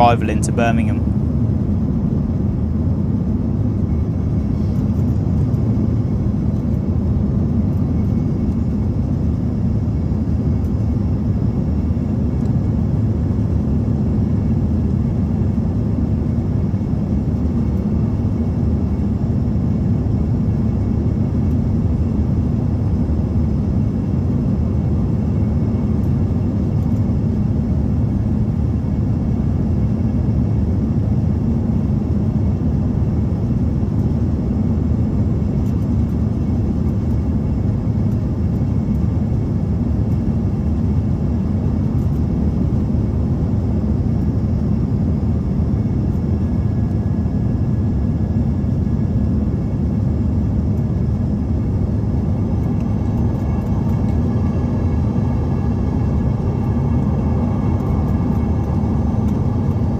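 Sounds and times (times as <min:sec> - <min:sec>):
airplane cabin rumble: 0:00.0 - 0:59.9
jet engines running: 0:00.0 - 0:59.9
airflow noise: 0:51.3 - 0:59.9.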